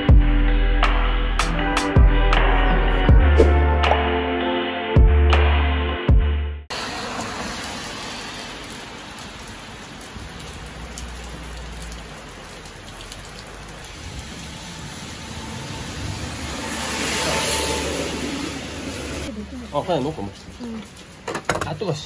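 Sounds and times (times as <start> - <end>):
heavy rain on road: 6.7 - 22.0
tyres swishing on wet road: 6.7 - 22.0.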